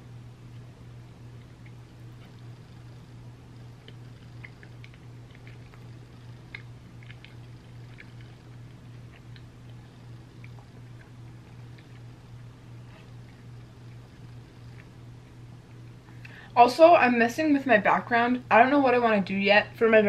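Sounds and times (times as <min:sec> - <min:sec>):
low hum: 0:00.0 - 0:20.0
mouth chewing ice cream: 0:00.5 - 0:16.2.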